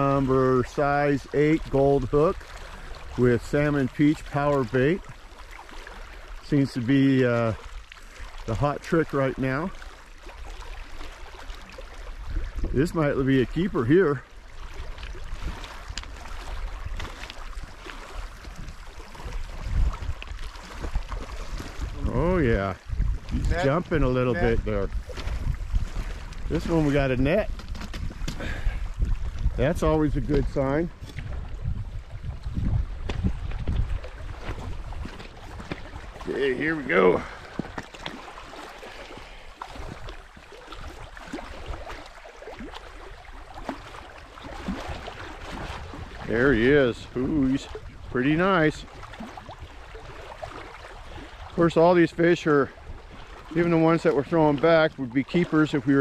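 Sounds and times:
waves lapping against rocks: 0:00.0 - 0:56.0
wind buffeting microphone: 0:12.2 - 0:56.0.

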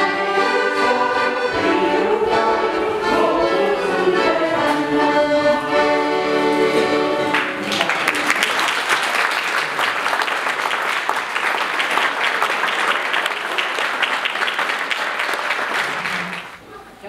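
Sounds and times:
accordion chord: 0:00.0 - 0:07.6
audience applauding: 0:07.2 - 0:16.6.

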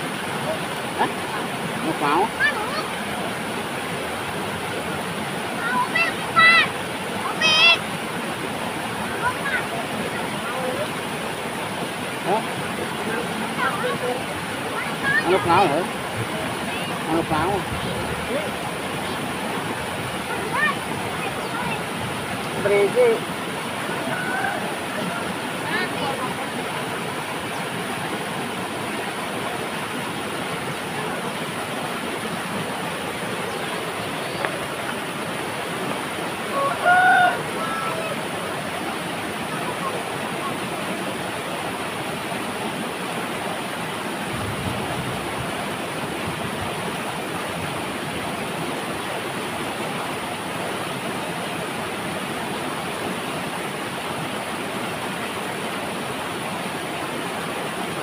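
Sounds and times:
river water rushing over boulders: 0:00.0 - 0:58.0.

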